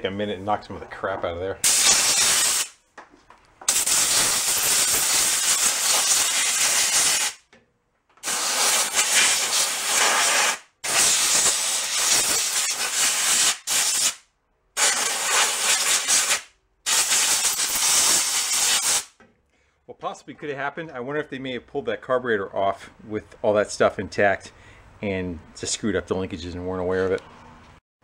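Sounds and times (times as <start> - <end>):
compressed air blow gun hissing: 1.6 - 2.7, 8.2 - 14.2, 14.8 - 19.1.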